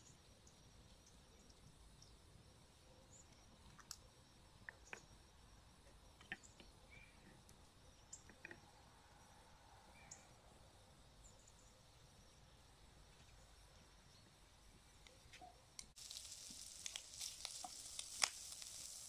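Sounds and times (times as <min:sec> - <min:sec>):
faint high chirps: 0:00.0 - 0:17.9
faint sharp clicks and knocks: 0:05.8 - 0:07.6.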